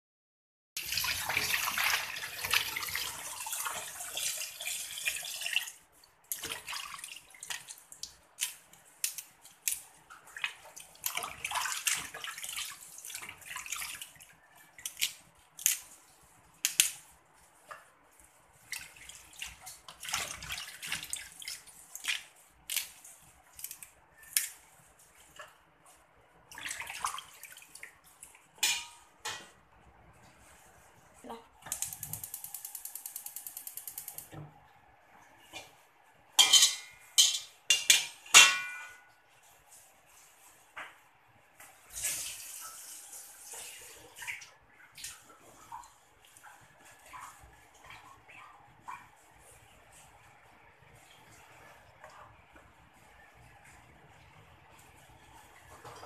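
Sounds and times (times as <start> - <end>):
tap water running into basin: 0.8 - 24.0, 41.6 - 48.1
hands sloshing leaves in water: 0.8 - 28.7, 38.4 - 41.0.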